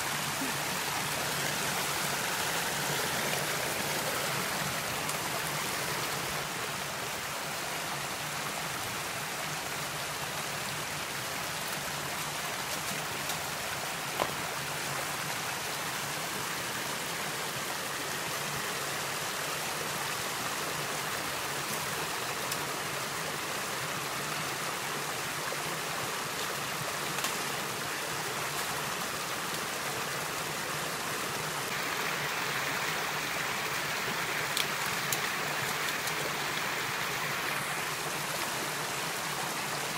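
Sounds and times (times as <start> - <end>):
water splashing over rocks: 31.2 - 39.9.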